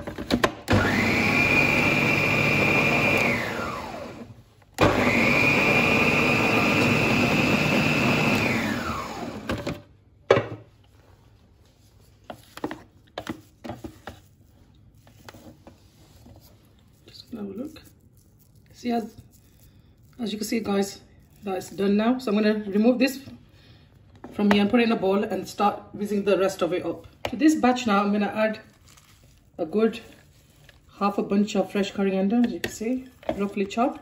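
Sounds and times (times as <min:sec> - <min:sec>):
food processor motor whine: 0:00.7 - 0:09.9.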